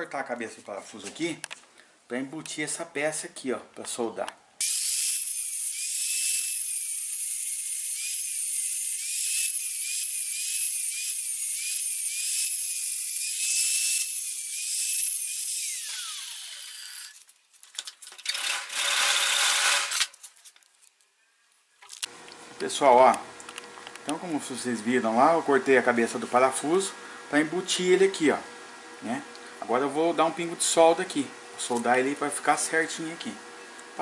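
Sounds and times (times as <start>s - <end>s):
grinder disc spinning down: 4.6s - 17.2s
angle grinder cutting steel: 4.6s - 17.3s, 18.2s - 20.1s.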